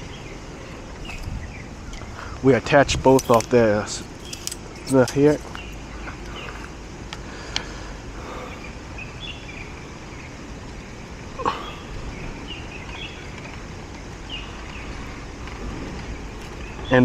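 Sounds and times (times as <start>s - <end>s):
distant traffic hum: 0.0s - 17.0s
metal antenna squeak: 3.1s - 5.7s
bird chirps: 4.0s - 6.7s, 8.3s - 13.6s.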